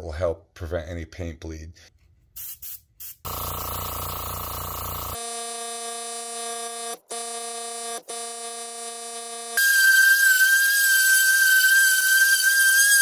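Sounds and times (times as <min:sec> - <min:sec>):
airbrush spraying hiss: 0:02.4 - 0:03.3
small motor buzzing: 0:03.3 - 0:09.0.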